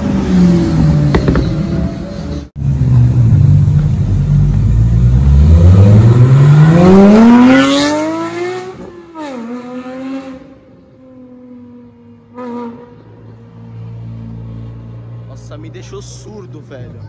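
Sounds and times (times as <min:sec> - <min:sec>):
car engine accelerating past: 0:03.5 - 0:10.5.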